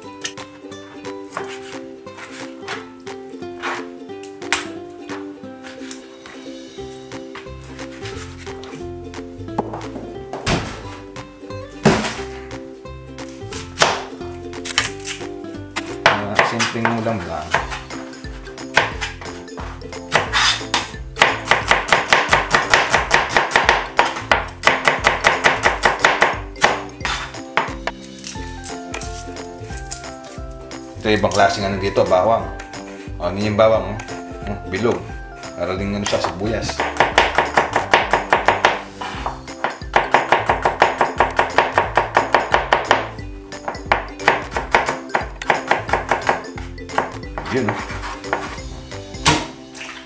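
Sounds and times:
background music: 0:00.0 - 0:50.0
knife chopping on cutting board: 0:03.6 - 0:03.8, 0:11.8 - 0:12.4, 0:13.5 - 0:15.2, 0:15.8 - 0:28.1, 0:36.0 - 0:48.6, 0:49.2 - 0:49.6.

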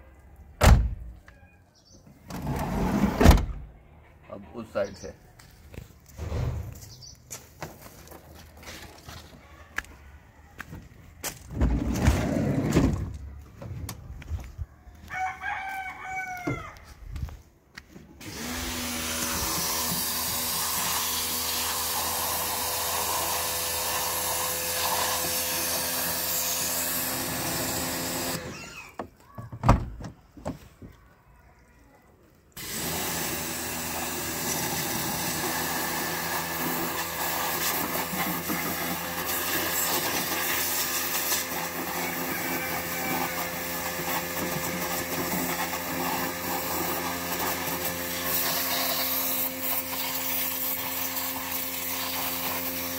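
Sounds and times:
rooster crowing: 0:14.9 - 0:16.9, 0:41.9 - 0:43.5
pressure washer spraying: 0:18.2 - 0:28.4, 0:32.6 - 0:52.9.

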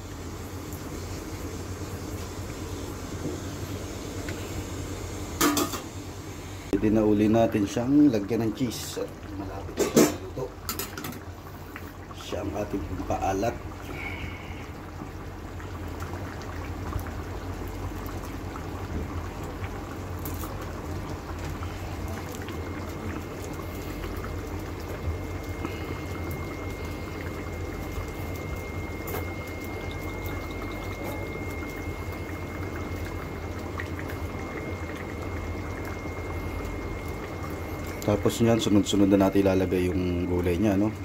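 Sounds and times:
sauce bubbling at a simmer: 0:00.0 - 0:41.0
constant low hum: 0:09.0 - 0:38.7
faint high whine: 0:21.6 - 0:41.0.

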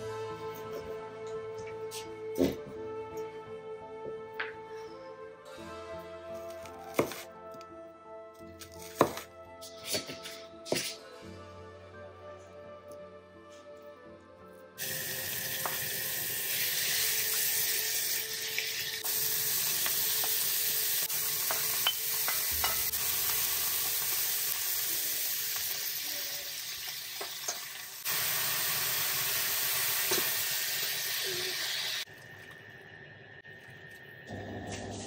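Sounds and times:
food sizzling in hot oil: 0:14.8 - 0:32.1
utensils knocking against a pan: 0:21.4 - 0:23.0.

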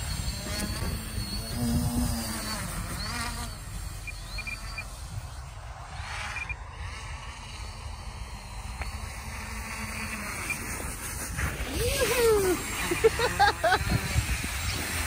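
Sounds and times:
electric motors and propellers buzzing: 0:00.0 - 0:15.0
raft sliding over snow: 0:10.2 - 0:15.0.

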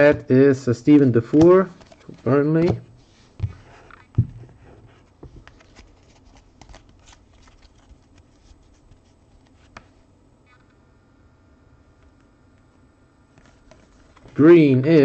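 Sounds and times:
trading cards rustling: 0:01.3 - 0:02.8, 0:05.3 - 0:09.9.

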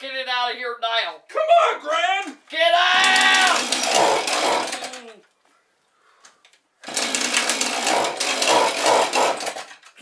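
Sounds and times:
person yelling: 0:01.3 - 0:03.8
chainsaw buzzing: 0:03.0 - 0:05.1, 0:06.8 - 0:09.9.

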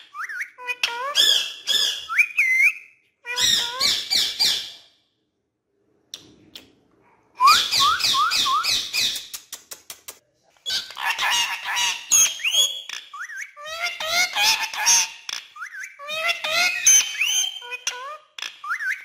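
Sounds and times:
parrot whistling and chattering: 0:00.0 - 0:04.8, 0:07.4 - 0:09.3, 0:10.7 - 0:19.0.

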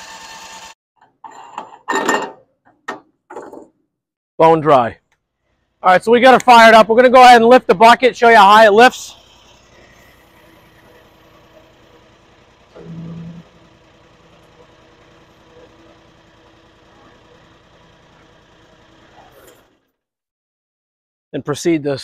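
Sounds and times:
loader engine running: 0:09.0 - 0:19.9
brief pitched sound: 0:12.8 - 0:13.6.

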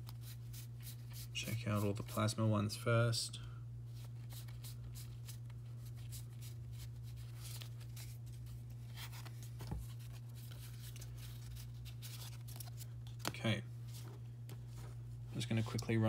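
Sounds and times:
steady low hum: 0:00.0 - 0:16.0
trading cards rustling: 0:04.0 - 0:15.9.

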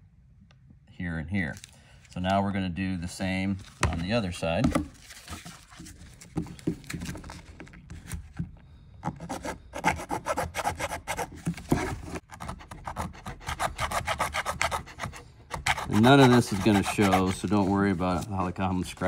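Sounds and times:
hacksaw sawing plastic: 0:09.0 - 0:18.2.

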